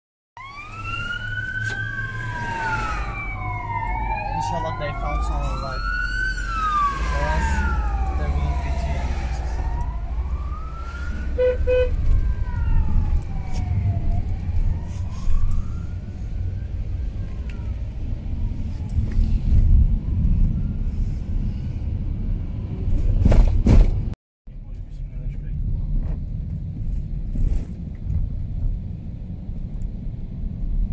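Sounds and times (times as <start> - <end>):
siren wailing: 0.4 - 19.0
vehicle engine and road rumble: 0.4 - 30.9.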